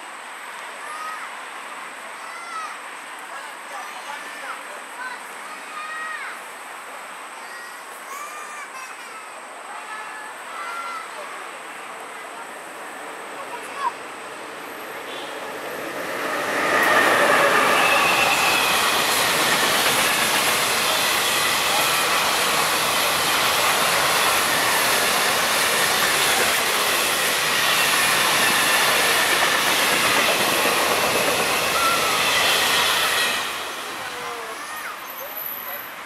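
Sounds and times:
train wheels rushing on rail: 11.6s - 36.0s
faint wheel squeal: 16.7s - 19.4s.

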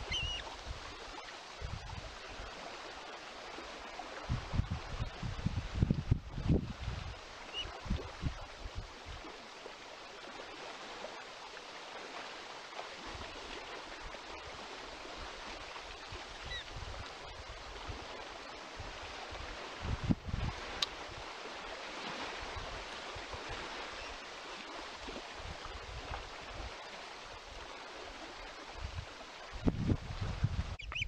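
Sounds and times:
faint high bird peeps: 0.0s - 0.5s, 30.8s - 31.0s
wind buffeting microphone: 4.2s - 9.2s, 18.8s - 21.3s, 28.7s - 31.0s.

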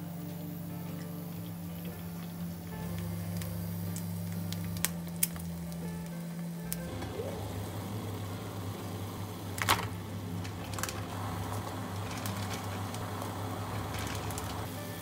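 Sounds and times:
steady low hum: 0.0s - 15.0s
water boiling in saucepan: 0.0s - 15.0s.

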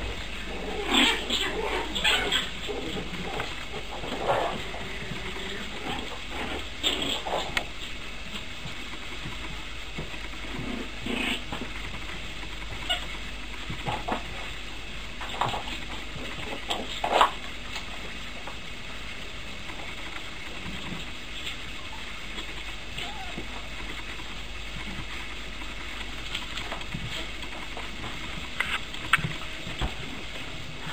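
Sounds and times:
puppies growling and yipping: 0.0s - 8.4s, 10.0s - 14.6s, 19.7s - 30.9s.

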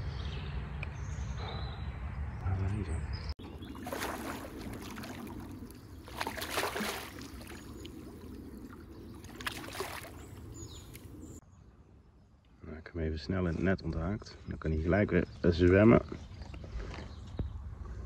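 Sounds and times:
fish splashing in water: 3.4s - 11.1s.

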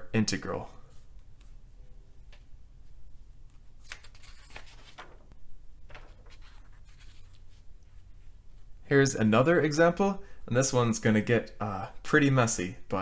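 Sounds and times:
paper rustling: 3.4s - 8.3s.

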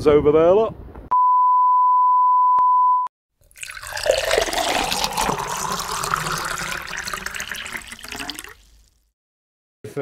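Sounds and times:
tap water running into sink: 3.5s - 8.9s.

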